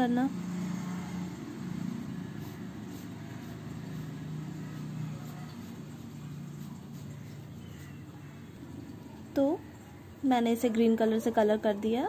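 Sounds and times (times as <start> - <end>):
felt-tip pen scratching on paper: 1.8 - 8.0.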